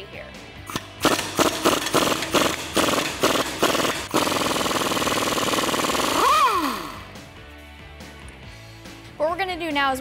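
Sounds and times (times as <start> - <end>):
pneumatic impact wrench hammering: 0.7 - 7.0.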